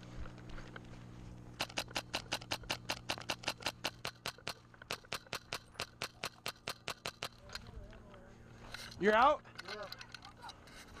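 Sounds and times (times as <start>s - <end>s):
airsoft gun firing rapidly: 1.6s - 7.4s.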